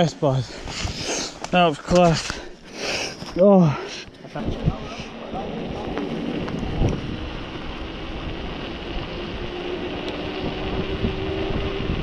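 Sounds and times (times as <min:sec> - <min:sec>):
wind on microphone: 0:04.4 - 0:12.0.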